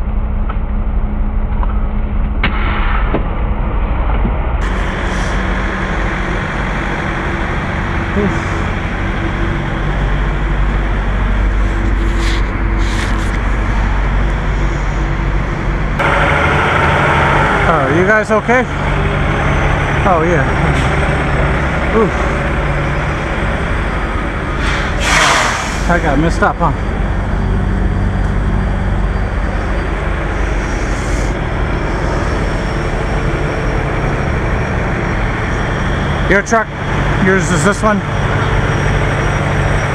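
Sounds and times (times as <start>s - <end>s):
diesel engine idling: 3.4s - 39.9s
short air hisses: 12.0s - 13.4s, 24.6s - 25.9s.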